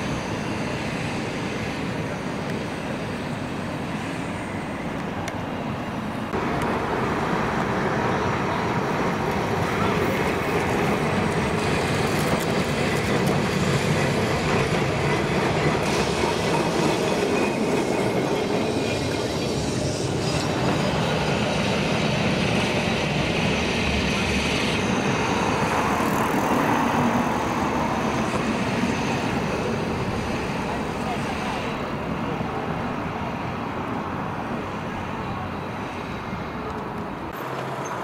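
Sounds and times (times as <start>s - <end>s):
tram wheels clattering on rails: 6.3s - 34.0s.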